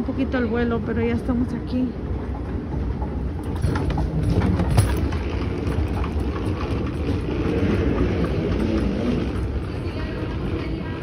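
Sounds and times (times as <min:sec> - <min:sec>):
moving walkway rumble: 0:00.0 - 0:11.0
rolling bag wheels on metal: 0:02.2 - 0:11.0.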